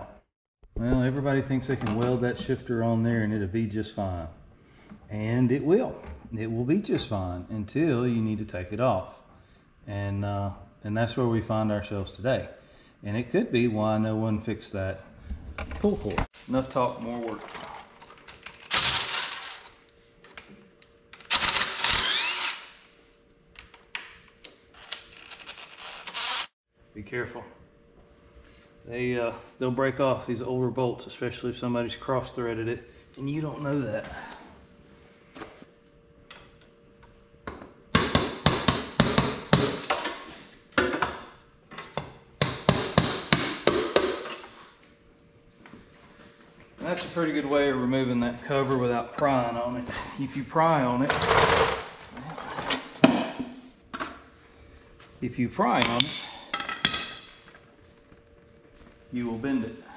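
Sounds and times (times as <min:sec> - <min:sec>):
cordless drill running: 0:21.3 - 0:22.8, 0:25.8 - 0:26.6.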